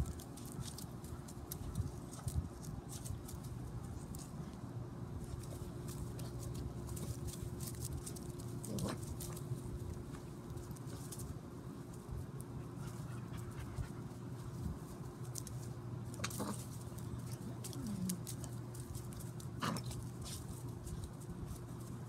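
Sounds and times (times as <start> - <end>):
steady low hum: 0.0 - 22.0
puppy breathing and sniffing: 5.2 - 11.3, 11.9 - 15.6.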